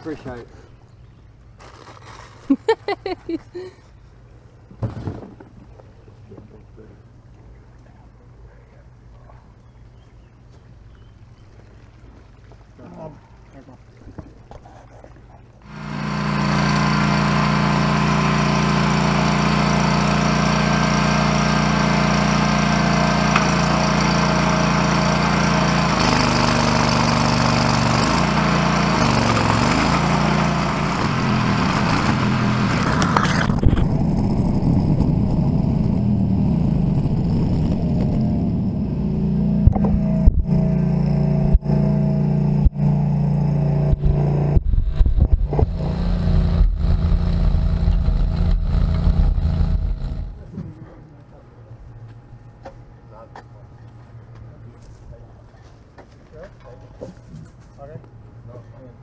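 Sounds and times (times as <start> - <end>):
digging chain cutting soil: 1.6 - 3.6, 15.6 - 35.5
trencher engine running: 15.6 - 50.5.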